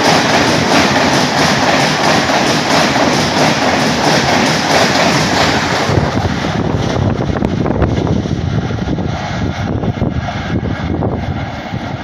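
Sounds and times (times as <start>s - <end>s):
train wheels knocking: 0.0s - 8.4s
passenger train rushing past: 0.0s - 12.0s.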